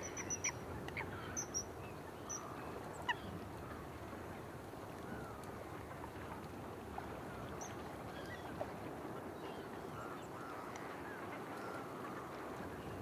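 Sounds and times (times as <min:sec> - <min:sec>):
distant fowl calling: 0:00.0 - 0:01.7.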